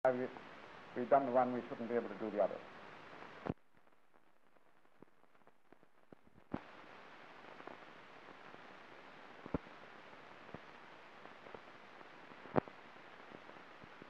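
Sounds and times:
old film soundtrack hiss: 0.1s - 14.0s
film clicks and pops: 3.2s - 6.8s, 9.4s - 9.7s, 12.4s - 14.0s.

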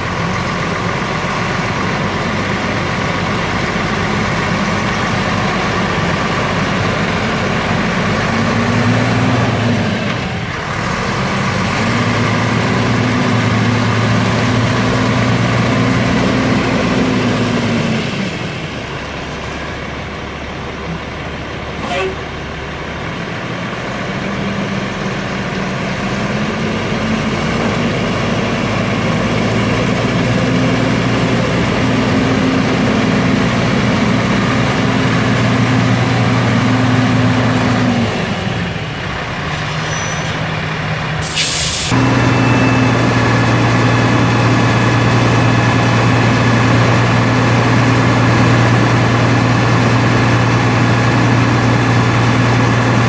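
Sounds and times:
diesel truck engine running: 0.0s - 53.0s
air brake hiss: 41.2s - 42.0s.

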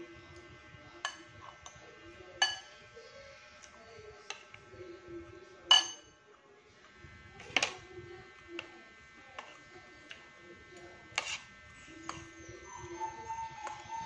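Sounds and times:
faint background music: 0.0s - 14.0s
fork and spoon clinking on plate: 2.4s - 2.8s, 5.7s - 6.1s.

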